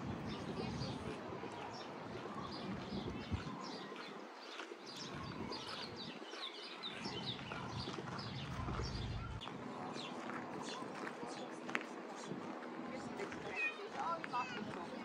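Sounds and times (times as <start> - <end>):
outdoor background noise: 0.0 - 15.0
birds chirping and singing: 4.9 - 10.8.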